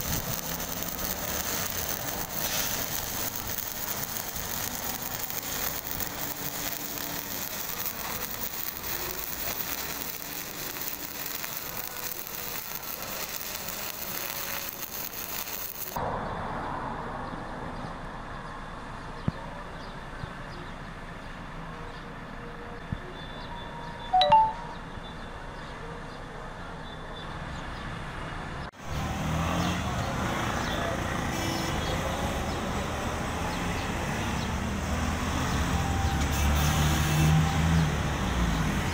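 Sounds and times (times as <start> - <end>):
welding arc crackling: 0.0 - 16.0.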